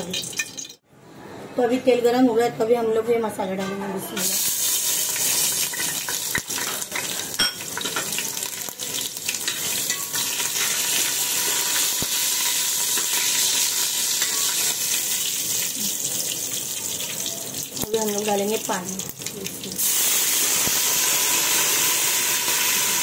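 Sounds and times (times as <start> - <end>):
spices sizzling in hot oil: 4.2 - 23.0.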